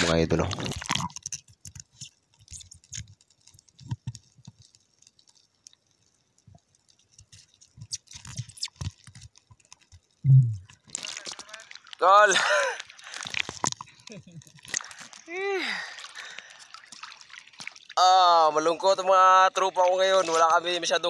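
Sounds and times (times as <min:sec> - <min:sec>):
underwater clicks and crackles: 0:00.0 - 0:21.0
low underwater thuds: 0:10.2 - 0:10.7.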